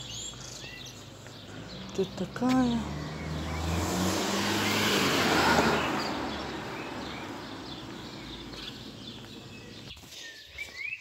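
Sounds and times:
birds chirping faintly: 0:00.0 - 0:11.0
car driving past: 0:01.4 - 0:09.9.

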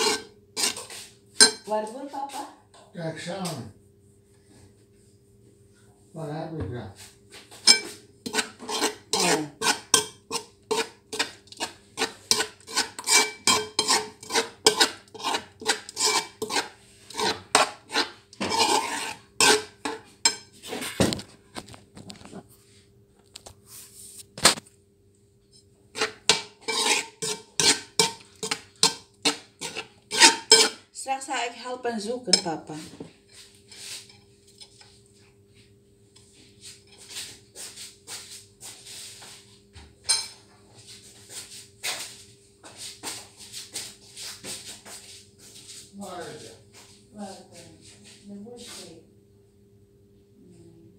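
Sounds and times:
utensil clinking against ceramic bowl: 0:00.0 - 0:01.7, 0:07.6 - 0:20.5, 0:26.0 - 0:30.8, 0:32.3 - 0:32.6.

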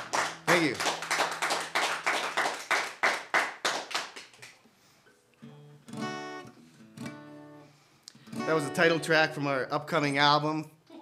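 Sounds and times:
acoustic guitar: 0:00.0 - 0:01.8, 0:04.5 - 0:11.0
audience clapping: 0:00.0 - 0:04.6.

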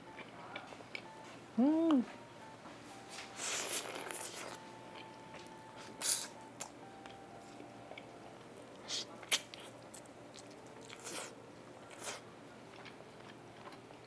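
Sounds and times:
person chewing meat: 0:00.0 - 0:01.2, 0:03.4 - 0:08.1, 0:08.7 - 0:14.0.

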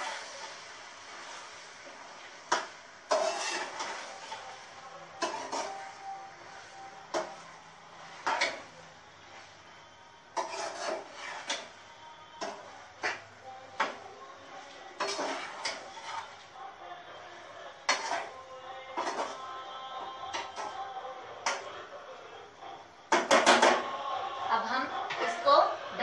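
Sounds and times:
metal skimmer scraping a pot: 0:03.1 - 0:04.5, 0:05.2 - 0:05.8, 0:10.4 - 0:11.7, 0:15.0 - 0:16.4, 0:17.9 - 0:18.4, 0:19.0 - 0:19.4.

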